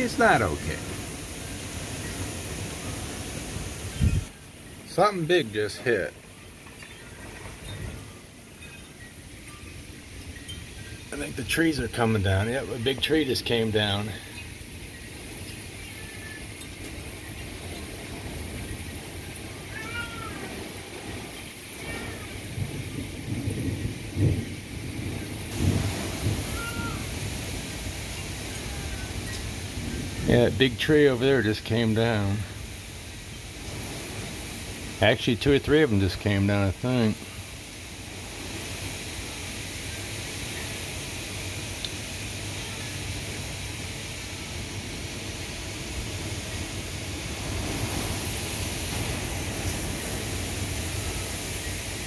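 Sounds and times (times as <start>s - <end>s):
heavy rain: 0.0s - 52.0s
wind: 0.0s - 52.0s
thunder rumbling: 16.4s - 32.8s, 41.2s - 52.0s.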